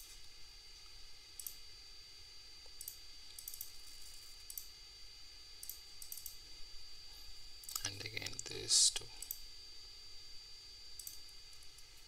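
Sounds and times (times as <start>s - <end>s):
thin high whine: 0.0s - 12.0s
computer mouse clicking: 1.4s - 1.6s, 2.8s - 4.7s, 5.6s - 6.4s, 9.2s - 9.4s, 11.0s - 11.2s.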